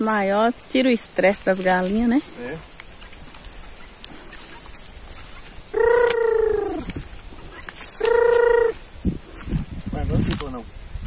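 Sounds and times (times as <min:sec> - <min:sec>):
farm bird calling: 0:02.9 - 0:09.4.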